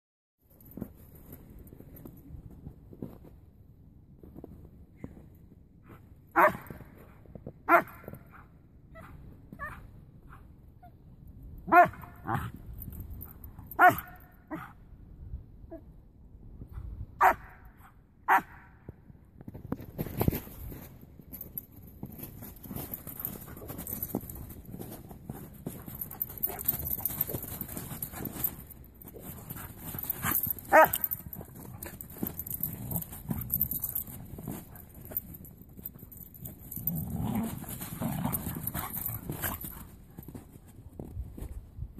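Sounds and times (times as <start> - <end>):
dog barking: 6.4 - 6.6, 11.7 - 12.1, 13.8 - 14.7, 17.2 - 17.6, 18.3 - 18.6, 30.7 - 31.1.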